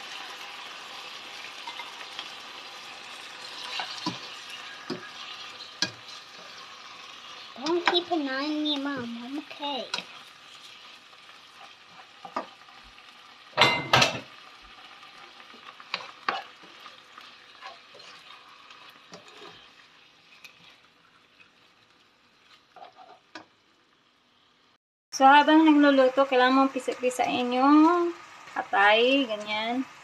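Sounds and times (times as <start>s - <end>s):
meat sizzling in a frying pan: 0.0s - 30.0s
spatula clattering: 3.3s - 6.7s, 15.6s - 19.7s.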